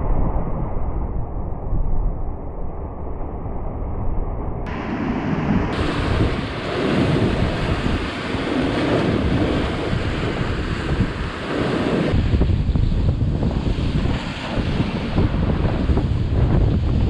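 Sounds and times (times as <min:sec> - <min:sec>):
wind buffeting microphone: 0:04.2 - 0:17.0
surf hissing: 0:04.7 - 0:12.8.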